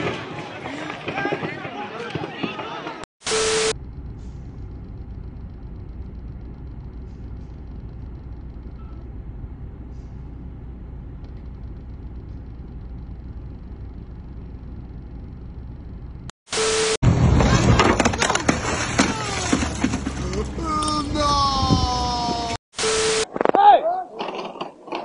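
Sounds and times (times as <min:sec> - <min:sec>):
diesel engine low rumble: 0:03.7 - 0:16.3.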